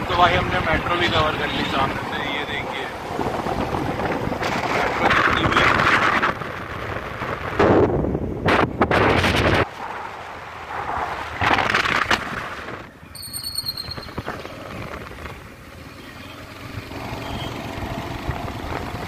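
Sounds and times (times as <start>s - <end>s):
wind buffeting microphone: 0.0s - 12.9s
road and engine noise: 0.0s - 19.0s.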